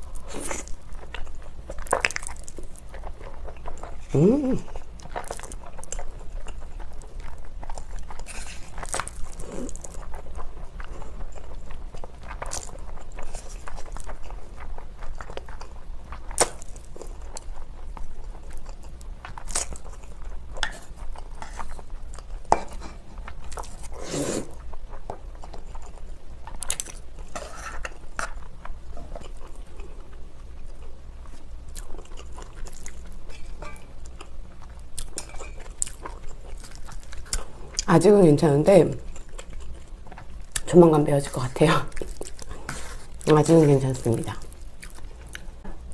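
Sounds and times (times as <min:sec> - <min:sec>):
slurping and chewing noodles: 0:00.0 - 0:45.9.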